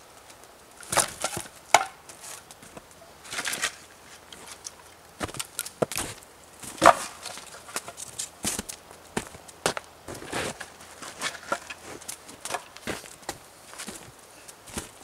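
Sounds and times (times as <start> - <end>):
firewood pieces clattering together: 0.8 - 8.4, 10.5 - 13.1.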